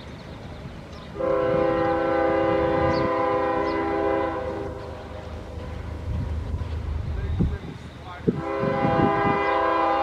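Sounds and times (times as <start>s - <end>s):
locomotive air horn blast: 1.2s - 5.0s, 8.3s - 10.0s.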